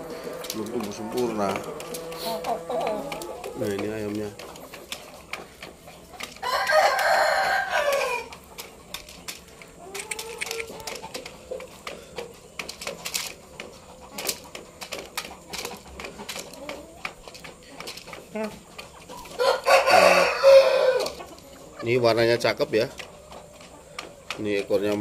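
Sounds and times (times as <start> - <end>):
rooster clucking: 0.0 - 8.6, 13.8 - 24.2
rooster crowing: 6.4 - 8.3, 19.4 - 21.2.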